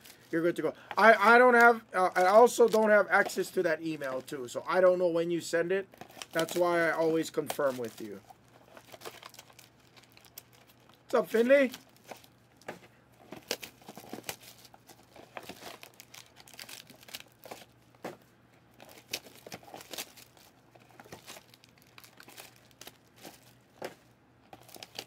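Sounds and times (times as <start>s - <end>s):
packaging crinkling and tearing: 5.9s - 18.0s, 18.7s - 25.0s.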